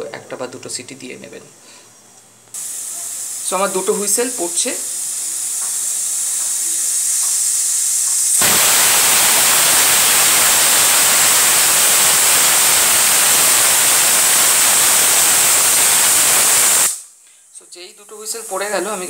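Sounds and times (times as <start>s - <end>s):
pressure cooker steam hissing: 2.6s - 17.1s
pressure cooker whistling: 2.6s - 17.1s.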